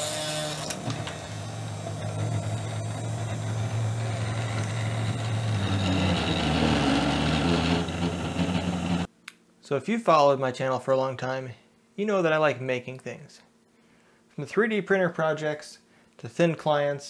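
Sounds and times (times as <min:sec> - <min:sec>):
spindle motor whirring: 0:00.0 - 0:09.1
stepper motors humming: 0:00.0 - 0:09.1.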